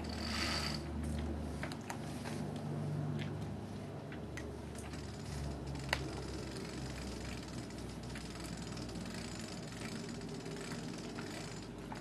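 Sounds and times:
hoist mechanical clicks: 0:04.7 - 0:12.0.

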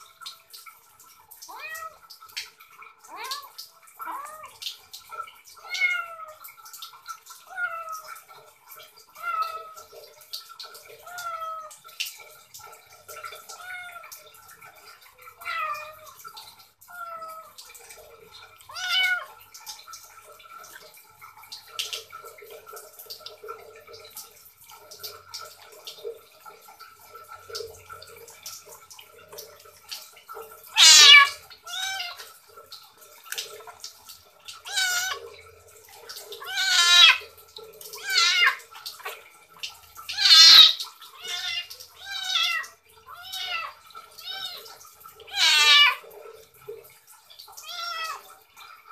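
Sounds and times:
kitten meowing: 0:01.5 - 0:02.0, 0:05.7 - 0:06.4, 0:18.7 - 0:19.3, 0:30.8 - 0:32.2, 0:34.7 - 0:35.2, 0:36.4 - 0:37.2, 0:38.0 - 0:38.6, 0:40.1 - 0:44.6, 0:45.3 - 0:46.0, 0:47.6 - 0:48.2.

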